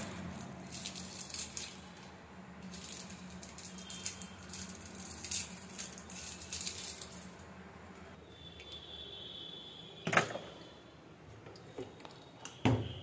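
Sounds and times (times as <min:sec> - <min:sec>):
plastic wrappers crinkling: 0:00.0 - 0:07.6.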